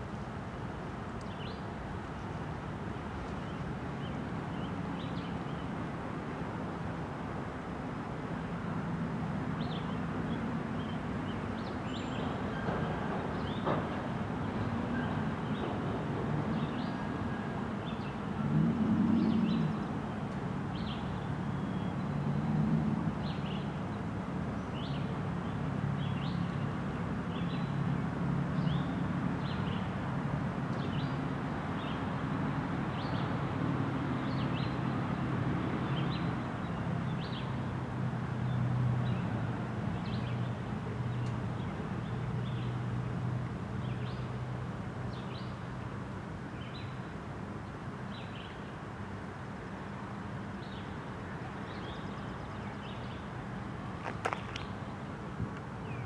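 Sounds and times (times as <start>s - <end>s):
train wheels rumbling on rail: 12.3s - 15.0s.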